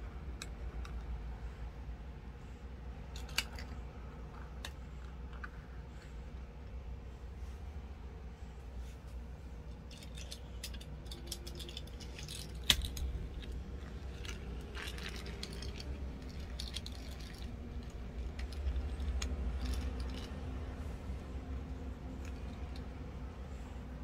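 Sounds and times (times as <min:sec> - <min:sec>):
toy cars clicking and tapping: 0:03.1 - 0:05.6, 0:09.8 - 0:20.8, 0:21.4 - 0:23.2.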